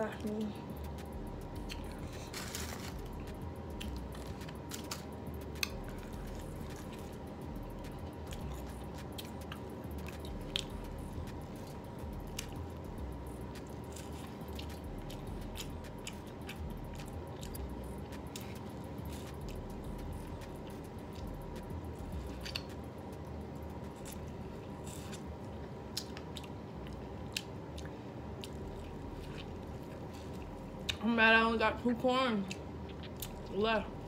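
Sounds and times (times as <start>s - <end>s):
person chewing: 0.8s - 22.9s, 23.6s - 31.0s, 32.5s - 33.5s.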